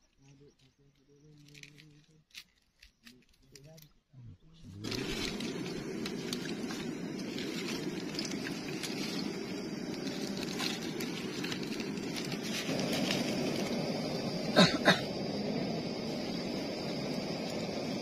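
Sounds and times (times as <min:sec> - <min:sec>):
gas stove roaring: 0:04.8 - 0:18.0.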